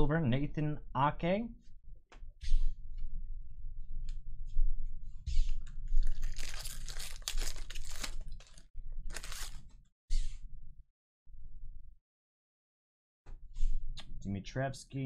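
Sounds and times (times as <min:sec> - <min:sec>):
foil wrapper tearing and crinkling: 0:06.0 - 0:09.7.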